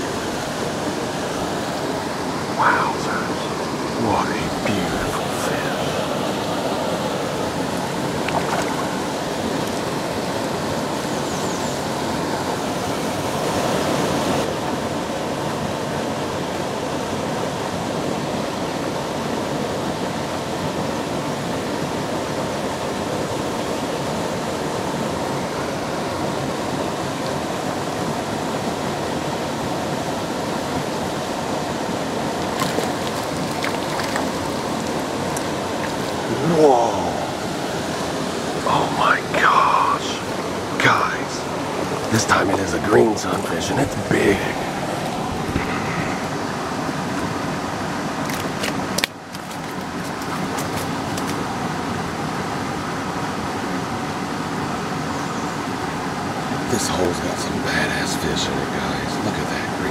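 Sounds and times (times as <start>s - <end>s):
water rushing through spillway: 0.0s - 59.9s
light water splashes: 7.6s - 10.6s, 32.3s - 36.4s, 48.2s - 51.6s.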